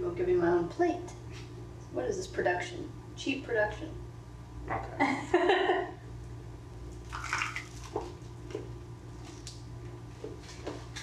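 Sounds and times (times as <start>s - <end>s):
low room hum: 0.0s - 11.0s
wet bite and crunch: 7.0s - 8.2s.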